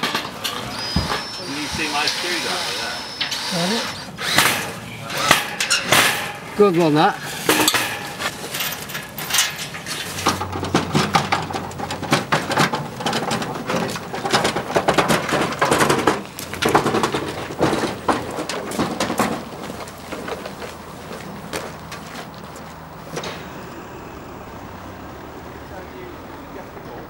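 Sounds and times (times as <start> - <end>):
metal tools clinking: 0.0 - 14.6
wheelbarrow rattling over cobbles: 0.0 - 27.0.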